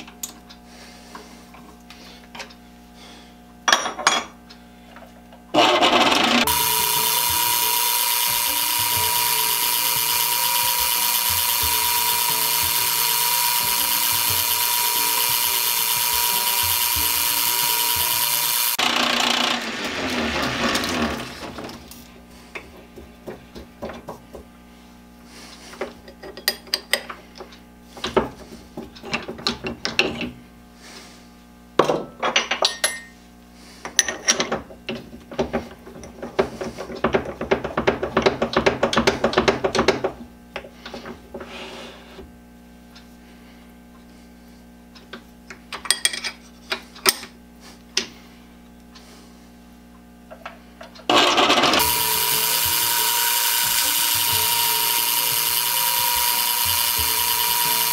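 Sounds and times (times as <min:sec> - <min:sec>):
lathe winding down: 0:05.5 - 0:21.8, 0:51.1 - 0:57.9
lathe running with high whine: 0:05.6 - 0:21.5, 0:51.1 - 0:57.9.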